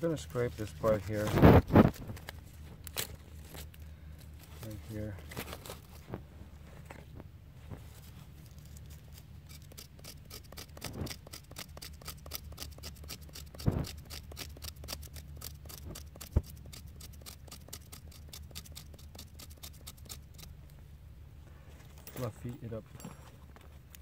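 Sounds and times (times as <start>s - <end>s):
knife scraping bark on stone: 8.8s - 20.6s.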